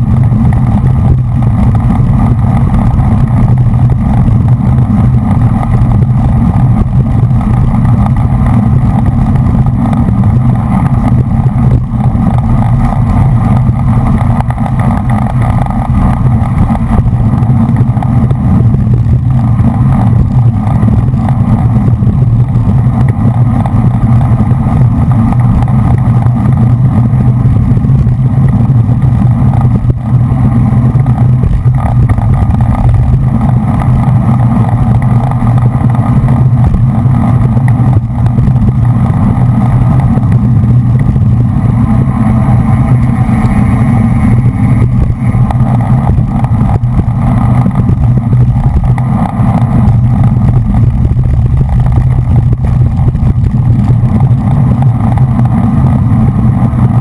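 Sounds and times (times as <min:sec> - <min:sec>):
bicycle tyre rumble: 0:00.0 - 0:57.0
wind buffeting: 0:00.0 - 0:57.0.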